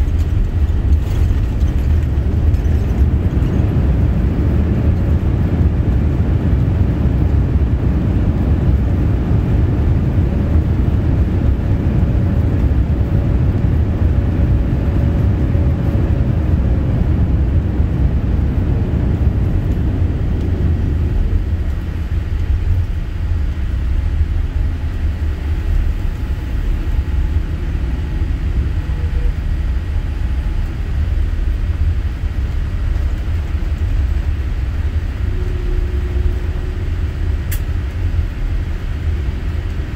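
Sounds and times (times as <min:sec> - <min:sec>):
aircraft cabin low rumble: 0:00.0 - 0:39.9.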